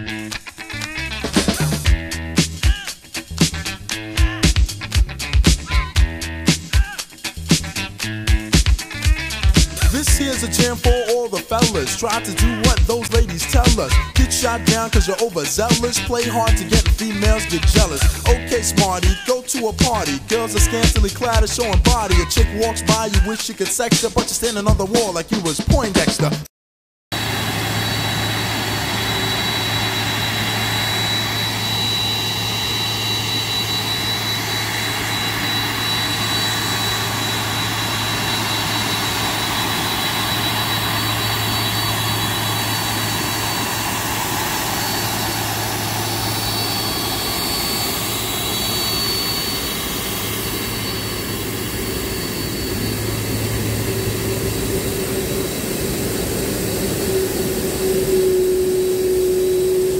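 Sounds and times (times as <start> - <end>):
jet engines running: 0.0 - 25.6, 27.1 - 59.9.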